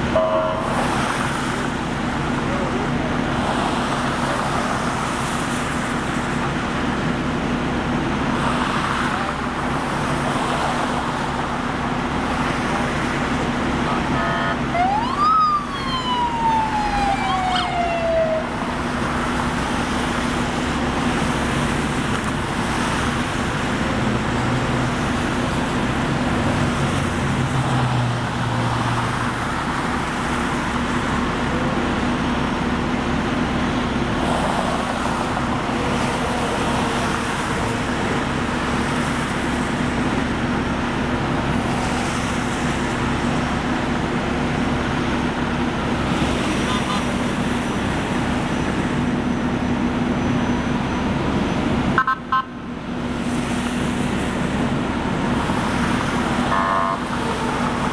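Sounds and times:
highway traffic: 0.0s - 57.9s
police siren wail: 13.9s - 19.9s, 56.2s - 57.9s.

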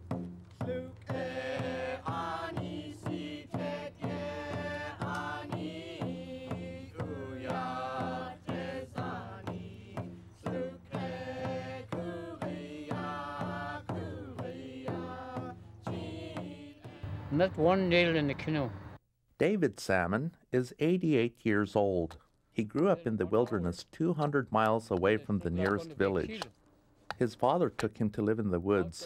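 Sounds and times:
steady drumbeat: 0.0s - 18.8s.

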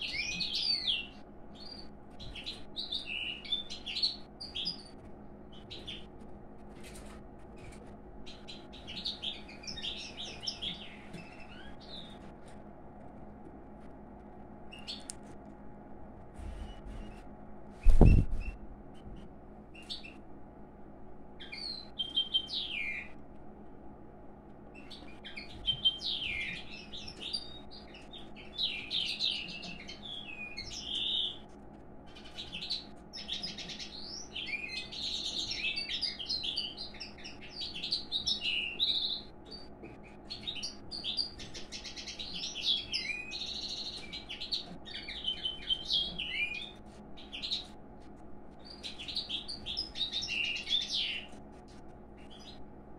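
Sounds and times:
bird twittering warble: 16.4s - 19.2s, 32.1s - 47.8s, 48.6s - 51.3s.

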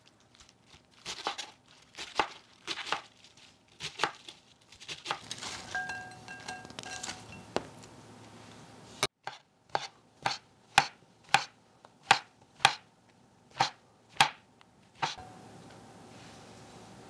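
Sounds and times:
leaves dropping into glass bowl: 5.2s - 7.6s
knife chopping on wooden board: 9.2s - 11.5s, 12.1s - 12.8s, 13.6s - 14.4s, 15.0s - 15.2s.

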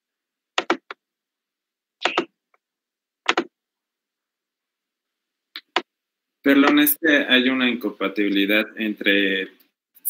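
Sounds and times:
mouse clicks: 2.0s - 2.3s.

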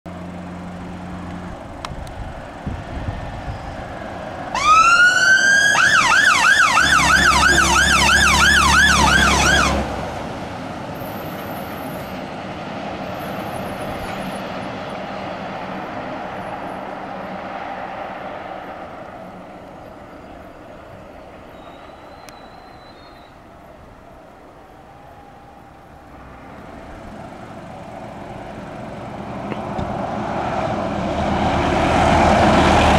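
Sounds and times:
vehicle engine and tyre noise: 0.1s - 32.9s
fire engine siren wailing and yelping: 4.4s - 10.0s, 23.3s - 26.2s.

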